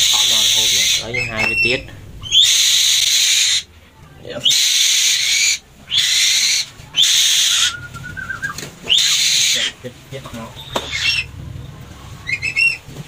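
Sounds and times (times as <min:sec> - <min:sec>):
bird of prey screeching: 0:00.0 - 0:03.7, 0:04.4 - 0:09.8, 0:10.6 - 0:11.3, 0:12.2 - 0:12.9
faint thin whistle: 0:07.5 - 0:08.6.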